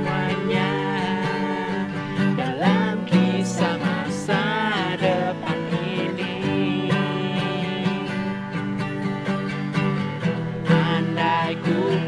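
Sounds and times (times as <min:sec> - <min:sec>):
person singing: 0:00.0 - 0:08.6, 0:10.7 - 0:12.0
acoustic guitars: 0:00.0 - 0:12.0.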